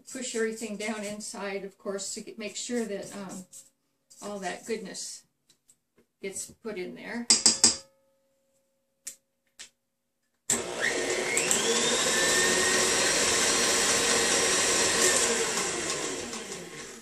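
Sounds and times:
spatula clicking on steel bowl: 7.3 - 7.8
stand mixer motor whine: 10.5 - 17.0.

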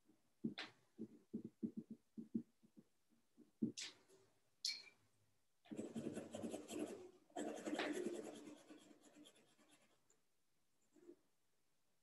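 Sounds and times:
pencil scribbling on paper: 5.7 - 10.2.

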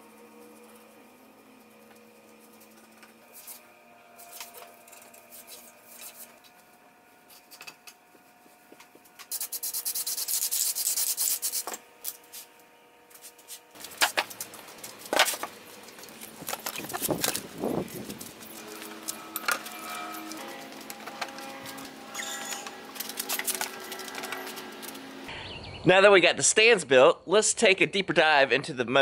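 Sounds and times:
paintbrush scrubbing on boards: 9.3 - 12.5.

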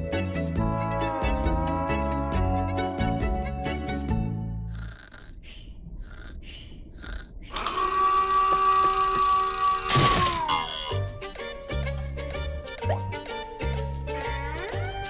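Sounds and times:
alarm clock ringing: 7.5 - 10.0.

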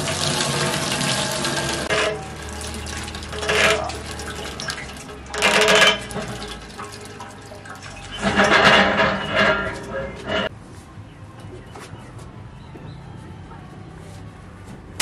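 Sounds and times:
water dripping and splattering: 0.0 - 8.7
yarn being wrung out: 0.0 - 10.5.

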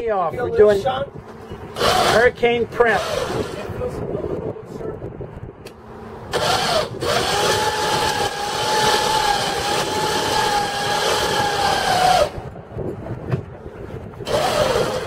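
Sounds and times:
winch motor whining: 1.7 - 3.7, 6.3 - 12.5, 14.2 - 15.0.

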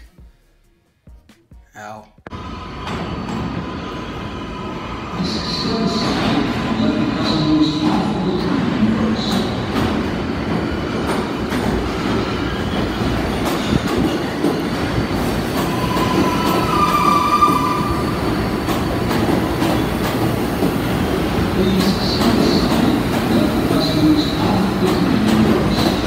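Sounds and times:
train wheels rumbling on rail: 2.3 - 26.0
high wheel squeal: 15.6 - 18.8.

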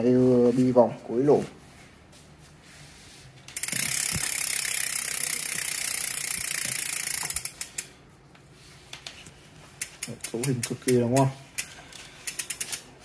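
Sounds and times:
bicycle freehub buzzing clicks: 3.5 - 8.0, 9.8 - 12.9.

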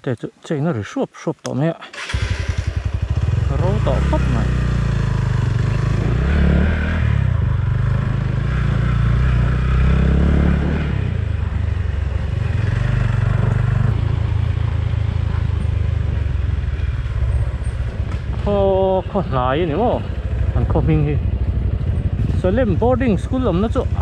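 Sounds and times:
motorcycle engine revving: 1.9 - 24.0.

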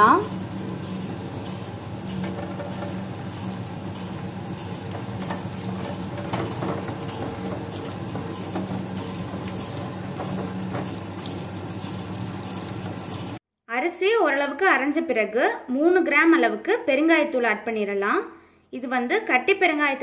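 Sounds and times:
wet grinder humming: 0.0 - 13.4.

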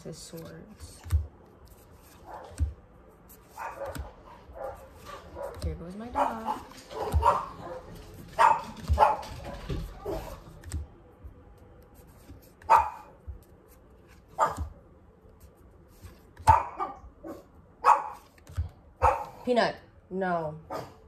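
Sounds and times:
dog barking: 2.2 - 2.6, 3.6 - 5.6, 6.2 - 10.4, 12.7 - 13.1, 14.4 - 14.7, 16.4 - 18.2, 19.0 - 19.5, 20.7 - 21.0.

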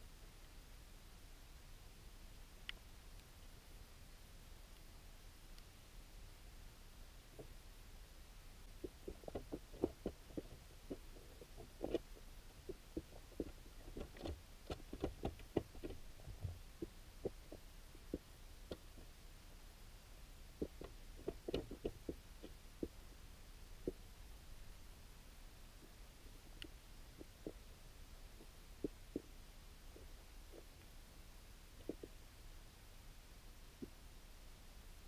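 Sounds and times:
low steady rumble: 0.0 - 35.0
soft underwater clicks and knocks: 8.8 - 19.1, 20.6 - 23.0.

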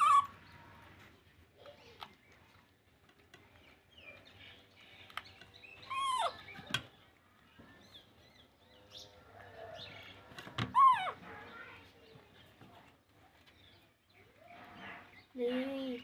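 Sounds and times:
high-pitched animal call: 0.0 - 0.4, 5.8 - 6.5, 10.7 - 11.3.

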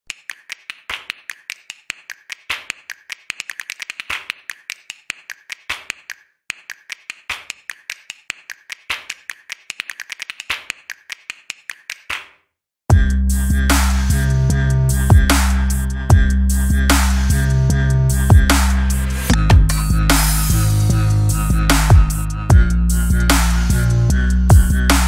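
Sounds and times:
rapid sharp clicks: 0.1 - 12.3.

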